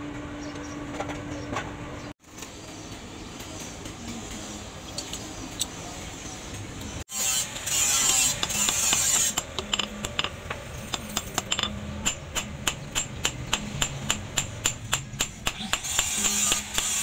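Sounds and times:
hammer striking hot metal on anvil: 0:07.8 - 0:17.0.

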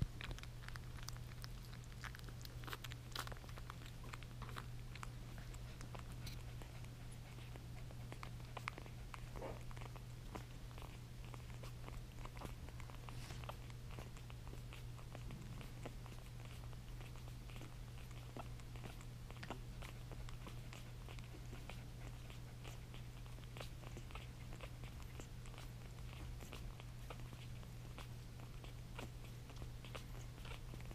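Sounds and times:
puppies suckling: 0:00.0 - 0:30.9
low hum: 0:15.0 - 0:16.4.

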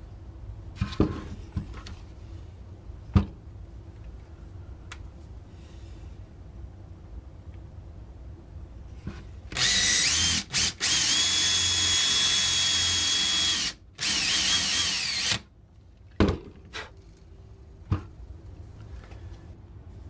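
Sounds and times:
cordless drill boring into wood: 0:09.6 - 0:15.4.

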